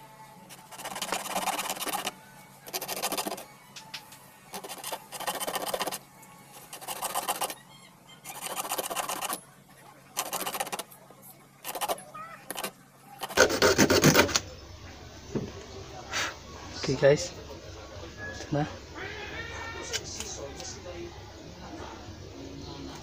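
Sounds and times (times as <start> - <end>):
hacksaw scraping metal: 11.6 - 14.4.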